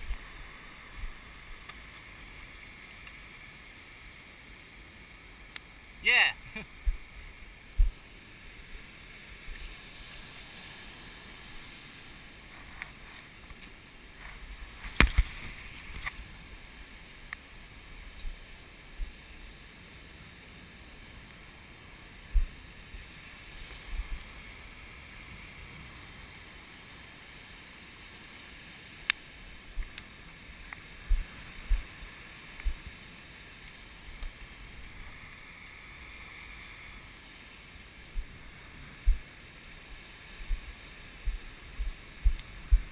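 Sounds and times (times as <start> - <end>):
ocean surf washing up beach: 0.0 - 42.9
wind buffeting microphone: 22.2 - 23.1, 23.8 - 26.0, 31.0 - 33.0, 38.1 - 39.3, 40.4 - 42.9.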